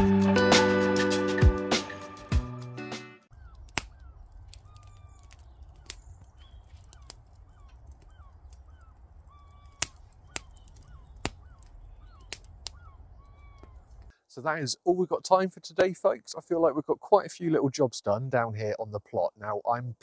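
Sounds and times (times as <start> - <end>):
low fire rumble: 3.3 - 14.1
wood fire crackling and popping: 3.3 - 14.1
small birds chirping: 3.3 - 14.8.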